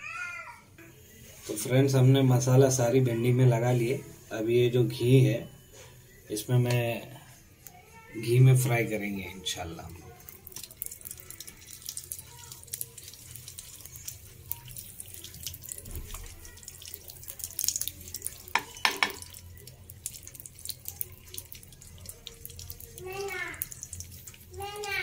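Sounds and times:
ghee sizzling in a pan: 0:08.2 - 0:25.0.

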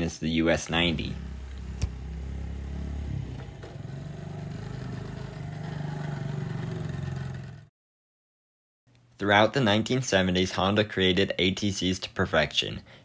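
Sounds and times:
small four-stroke engine running: 0:01.1 - 0:07.7.

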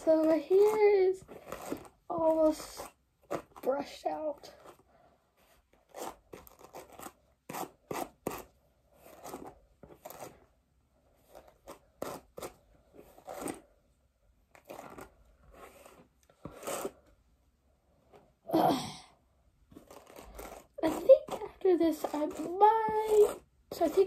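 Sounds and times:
hairbrush swishing through hair: 0:14.6 - 0:17.0, 0:19.8 - 0:24.0.

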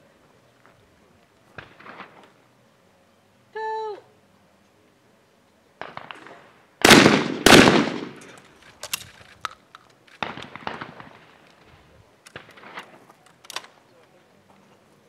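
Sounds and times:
shotgun shots with echo: 0:05.8 - 0:08.4, 0:10.2 - 0:11.4.

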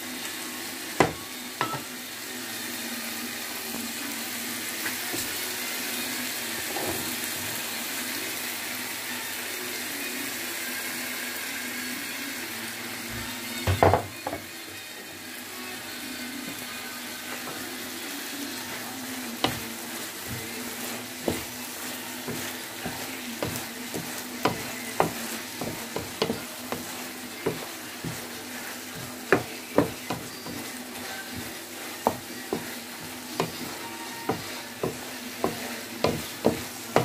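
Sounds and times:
food sizzling in a frying pan: 0:00.0 - 0:37.0
wooden spatula knocking on pan: 0:01.0 - 0:01.9, 0:13.7 - 0:14.4, 0:22.3 - 0:28.3, 0:29.0 - 0:32.8, 0:33.4 - 0:37.0.

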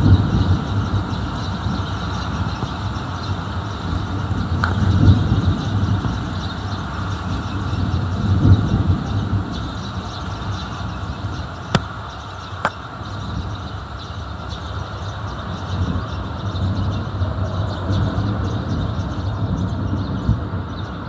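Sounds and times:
distant thunder rumbling: 0:00.0 - 0:13.6.

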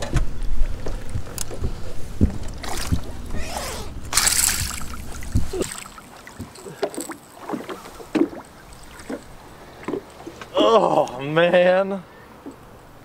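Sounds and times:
fish splashing at surface: 0:04.1 - 0:09.3.

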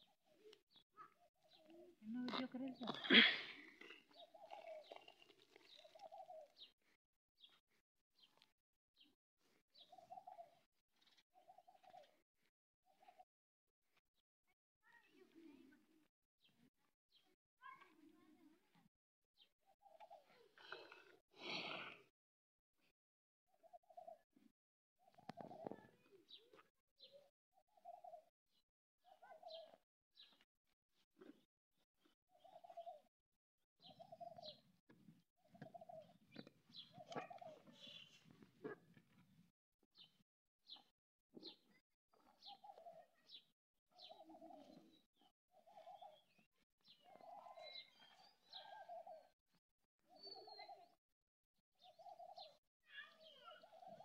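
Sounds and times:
low cooing bird calls: 0:01.4 - 0:06.7, 0:25.0 - 0:26.4, 0:32.3 - 0:33.1, 0:33.8 - 0:34.6, 0:35.4 - 0:38.8, 0:44.0 - 0:49.3, 0:50.1 - 0:51.0, 0:51.8 - 0:52.6, 0:53.5 - 0:54.0
dove cooing: 0:44.0 - 0:45.0.

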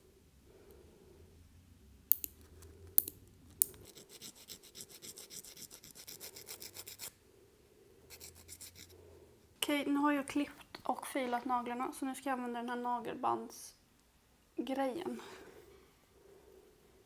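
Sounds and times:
nail clipper snipping: 0:02.1 - 0:02.4, 0:03.0 - 0:03.8
nail file scraping: 0:02.1 - 0:07.2, 0:08.1 - 0:09.0.

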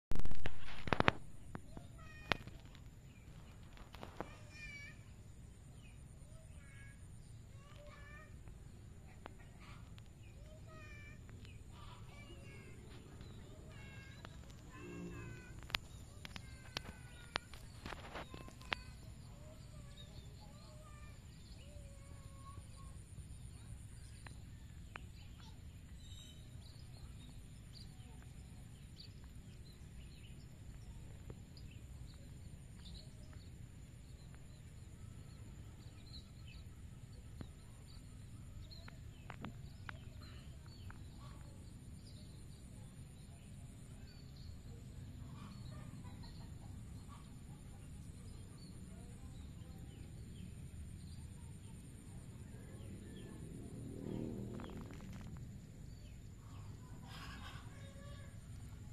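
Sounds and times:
bird calls: 0:05.7 - 0:58.9
high-pitched hum: 0:14.6 - 0:16.0
low rumble: 0:51.9 - 0:57.2.

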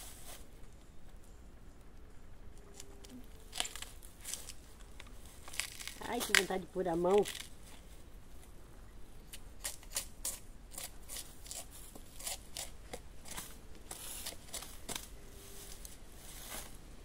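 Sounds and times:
knife cutting bamboo shoot: 0:05.4 - 0:07.5, 0:09.3 - 0:15.1.

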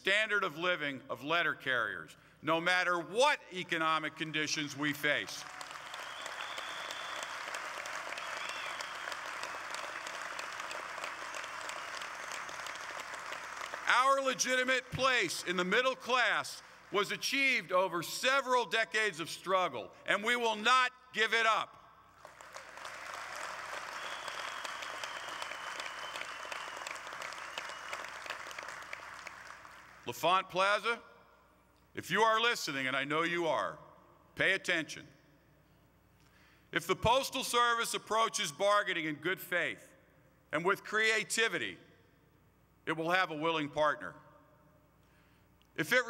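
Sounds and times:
audience applauding: 0:05.4 - 0:15.0, 0:22.2 - 0:30.0.

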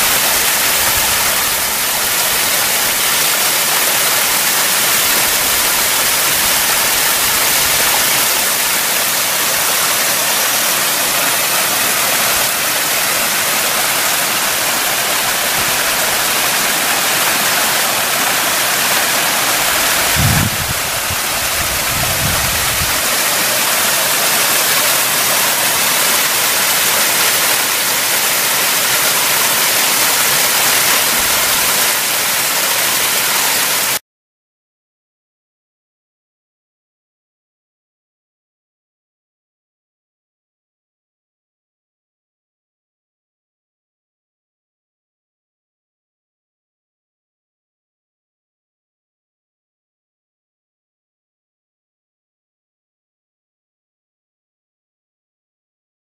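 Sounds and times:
stream rushing over rocks: 0:00.0 - 0:34.0
low rumbles: 0:19.6 - 0:23.2.

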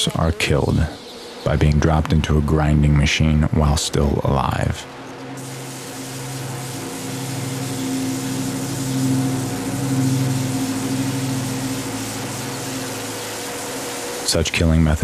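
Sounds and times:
machine motor hum: 0:04.2 - 0:15.0
hiss: 0:05.3 - 0:15.0.

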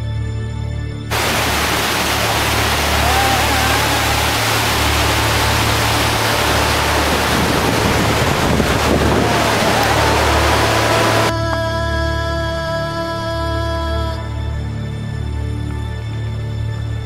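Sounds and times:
white-water river rushing: 0:01.1 - 0:11.4
wind buffeting microphone: 0:03.7 - 0:11.3.

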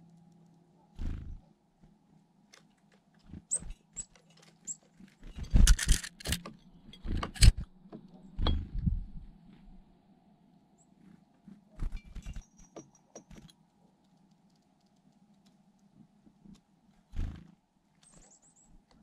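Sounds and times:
bird wingbeats fluttering: 0:01.0 - 0:01.4, 0:03.2 - 0:06.3, 0:11.0 - 0:13.5, 0:17.1 - 0:18.4.

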